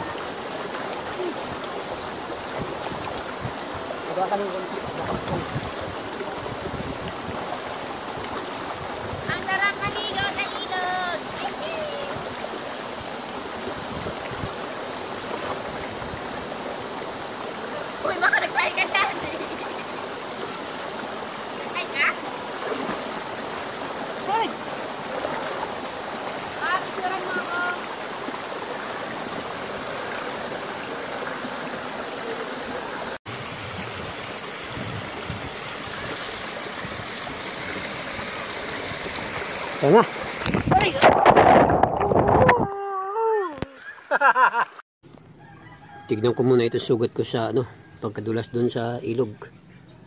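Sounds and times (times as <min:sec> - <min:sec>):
creek rushing over rocks: 0:00.0 - 0:42.5
water running over stones: 0:00.0 - 0:42.5.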